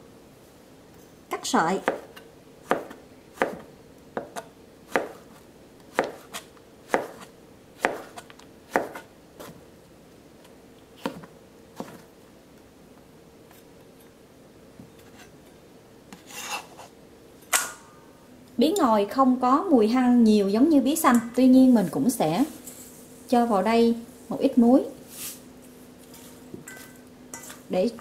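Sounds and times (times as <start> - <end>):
knife chopping on plastic board: 1.8 - 9.6.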